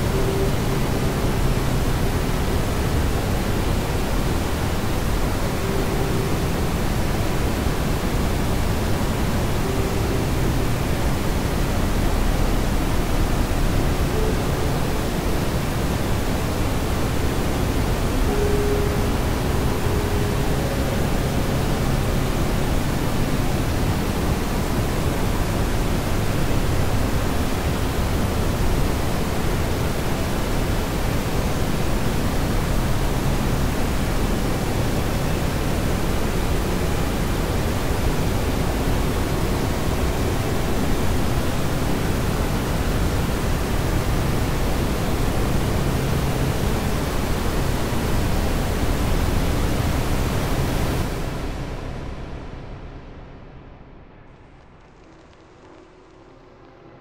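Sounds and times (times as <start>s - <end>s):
steady rushing static noise: 0.0s - 57.0s.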